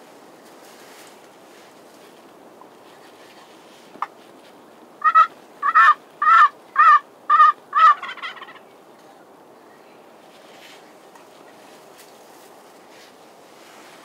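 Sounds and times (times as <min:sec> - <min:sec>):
turkey yelps: 0:05.0 - 0:08.6.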